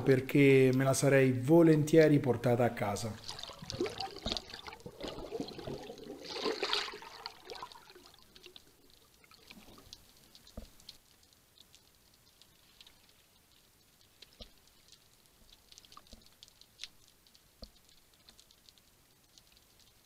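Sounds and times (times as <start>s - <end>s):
water bubbling underwater: 3.1s - 11.0s
faint underwater clicks: 6.7s - 20.0s.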